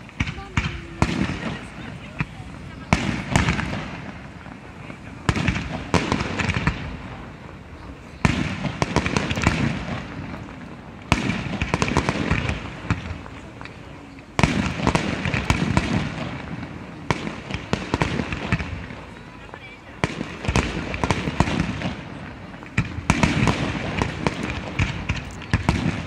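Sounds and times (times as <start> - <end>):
pops and crackles: 8.2 - 16.2, 17.1 - 26.0
firework shells bursting: 8.2 - 26.0.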